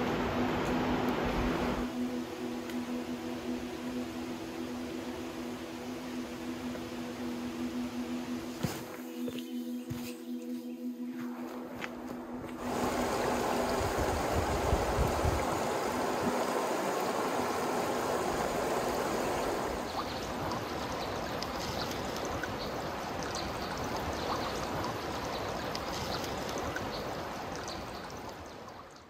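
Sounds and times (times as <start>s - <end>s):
water dripping: 12.5s - 29.0s
creek water splashing over rocks: 12.6s - 29.0s.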